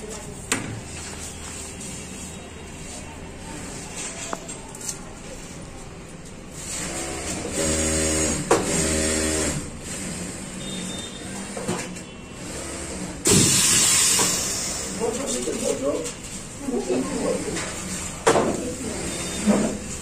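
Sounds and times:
heat press air hiss: 13.3 - 15.0.

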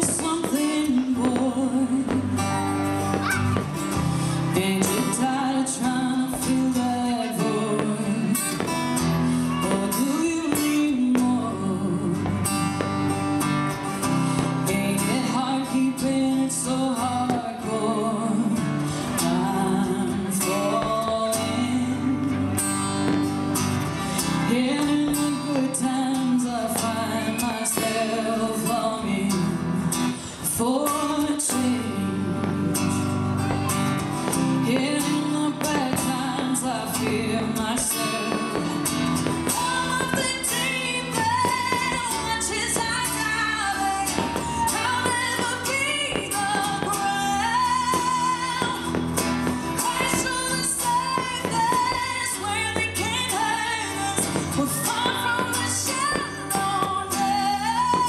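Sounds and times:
woman singing: 0.0 - 23.5, 24.2 - 33.5, 34.3 - 58.0
guitar accompaniment: 0.0 - 58.0.

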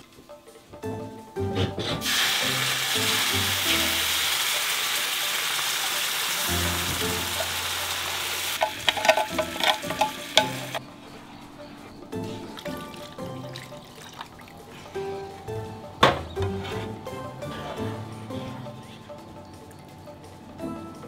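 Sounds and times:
liquid sizzling in frying pan: 2.0 - 10.8
pan clicks and knocks: 8.6 - 10.8.

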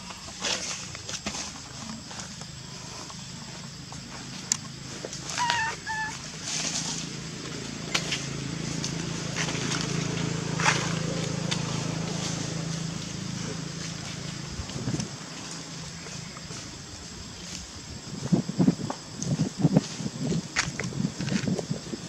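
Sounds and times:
animal high calls: 5.2 - 6.4.

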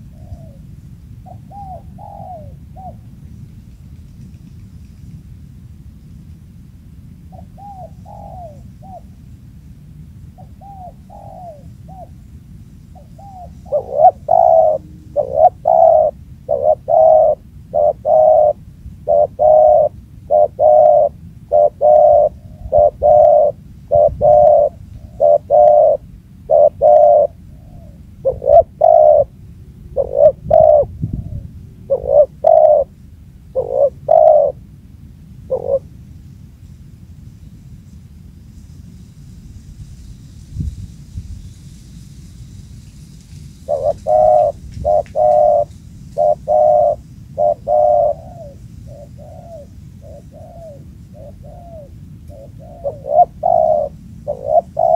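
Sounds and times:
dove cooing: 0.0 - 3.2, 7.3 - 9.2, 10.3 - 12.2, 12.9 - 34.7, 35.4 - 35.9, 43.6 - 54.9
low background rumble: 0.0 - 54.9.

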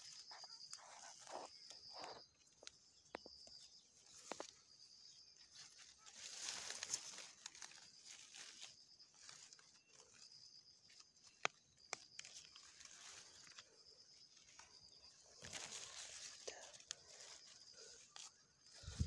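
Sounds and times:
leaves rustling: 3.9 - 19.0.

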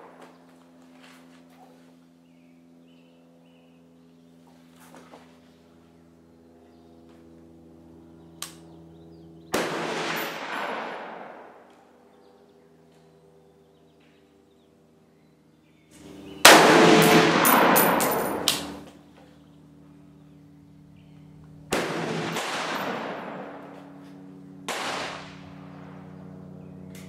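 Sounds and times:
rifle shots echoing: 9.5 - 11.7, 16.4 - 18.8, 21.7 - 26.1.

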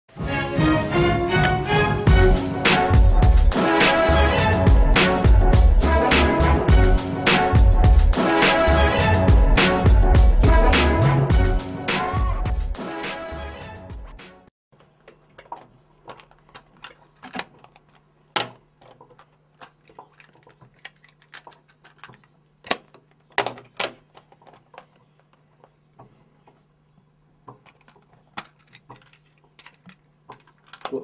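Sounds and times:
low electrical hum: 14.8 - 31.0.

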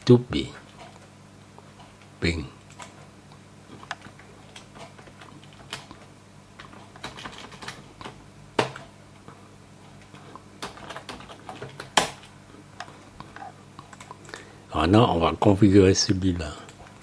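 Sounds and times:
keyboard typing: 3.8 - 8.9, 10.0 - 14.3.

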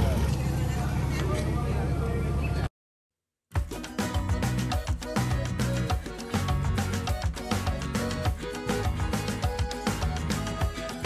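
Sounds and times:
music with steady beat: 3.5 - 11.0.

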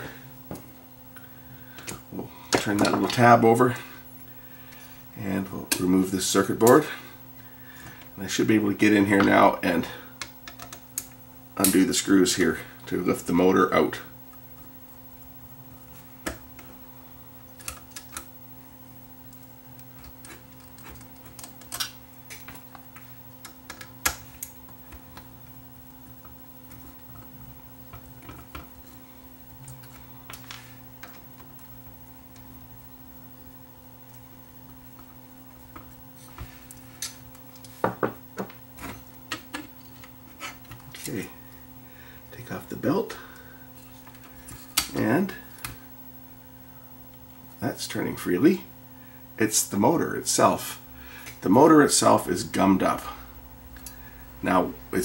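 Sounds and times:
faint hum: 0.0 - 55.0
small parts clicking and tapping: 10.2 - 11.8, 19.3 - 25.3, 26.2 - 29.0.

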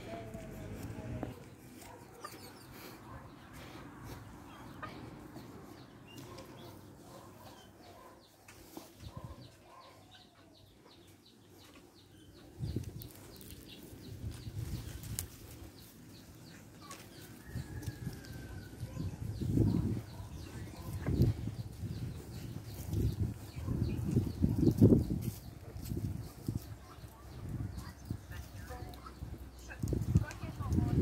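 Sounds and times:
small birds chirping: 0.0 - 31.0
wind buffeting microphone: 12.6 - 13.3, 17.4 - 31.0.

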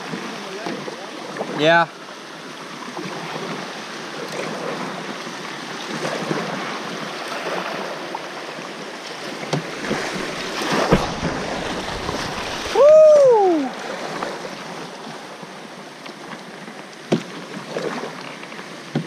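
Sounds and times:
kayak knocks: 0.0 - 1.7, 9.0 - 12.9, 15.4 - 19.0
water rushing and splashing: 0.0 - 19.0.

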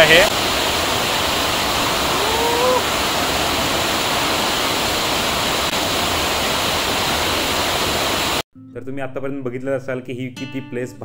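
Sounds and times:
waterfall rushing: 0.0 - 8.4.

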